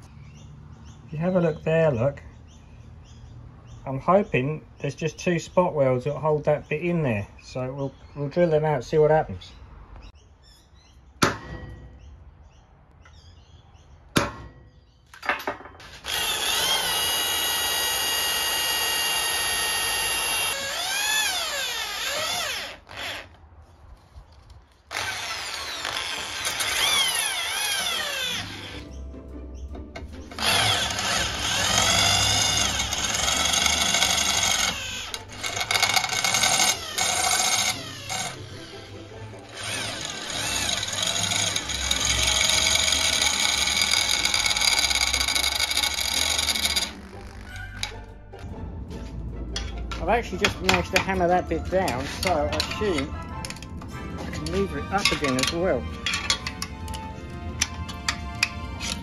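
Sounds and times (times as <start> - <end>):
cordless drill boring metal: 15.8 - 23.4, 24.9 - 28.8, 30.3 - 47.9, 54.4 - 56.6.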